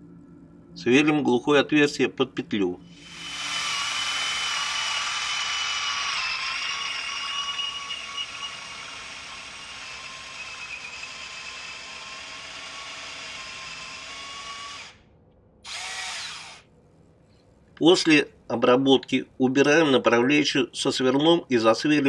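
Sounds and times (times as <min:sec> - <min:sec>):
electric drill boring into wood: 0:02.9 - 0:15.0, 0:15.6 - 0:16.7.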